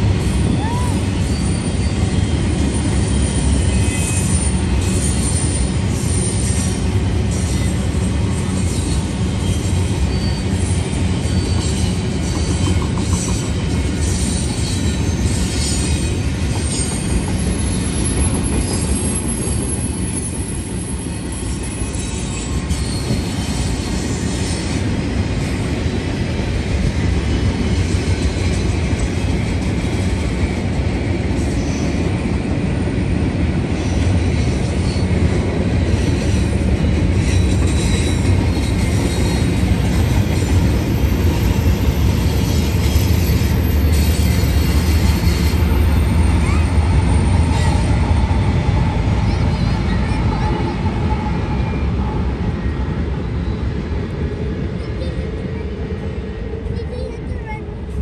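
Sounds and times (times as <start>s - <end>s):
diesel locomotive rumble: 0.0s - 58.0s
freight train rumble and clatter: 0.0s - 58.0s
wheel squeal: 0.6s - 7.8s, 8.4s - 24.8s, 37.2s - 48.0s.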